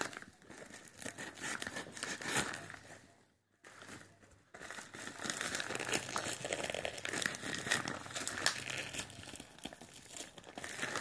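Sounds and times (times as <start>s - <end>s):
plastic mailer bag crinkling: 3.7s - 11.0s.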